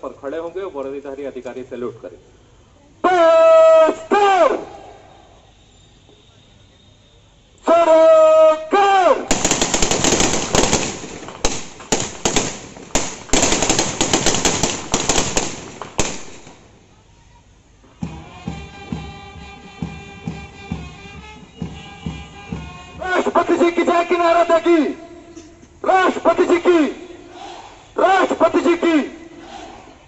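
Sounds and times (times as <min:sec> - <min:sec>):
person shouting a command: 0:03.0 - 0:05.0, 0:07.6 - 0:09.4, 0:23.0 - 0:25.2, 0:25.8 - 0:30.0
rifles firing in a ripple: 0:09.3 - 0:16.7
brass band playing an anthem: 0:18.1 - 0:25.1.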